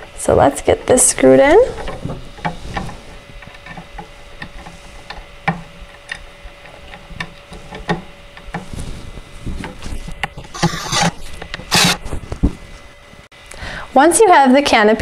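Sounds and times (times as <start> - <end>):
cordless drill driving screw: 10.5 - 12.0.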